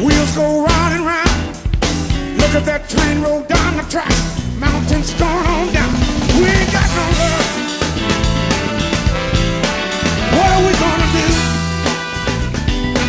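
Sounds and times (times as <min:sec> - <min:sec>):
bass guitar: 0:00.0 - 0:13.0
drum kit groove: 0:00.0 - 0:13.0
lead melody with bending notes: 0:04.3 - 0:13.0.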